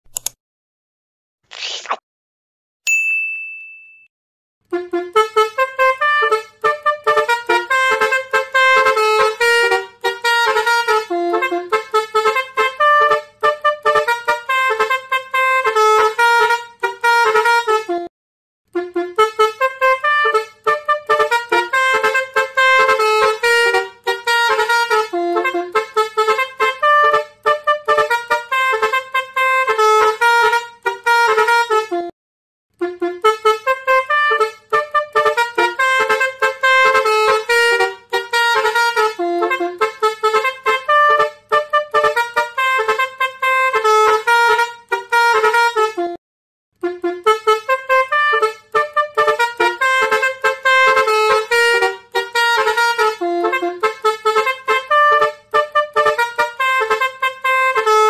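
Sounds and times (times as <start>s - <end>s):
single ding: 2.9s - 4.1s
musical vehicle horn melody: 4.6s - 18.1s, 18.7s - 46.2s, 46.8s - 58.0s.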